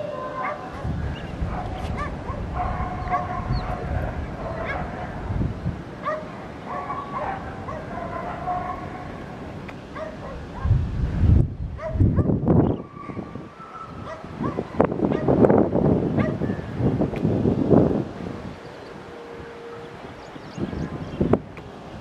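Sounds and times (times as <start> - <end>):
dogs barking and yipping: 0.0 - 5.4, 6.0 - 10.8, 11.8 - 15.4, 16.2 - 16.7
wind buffeting microphone: 0.0 - 22.0.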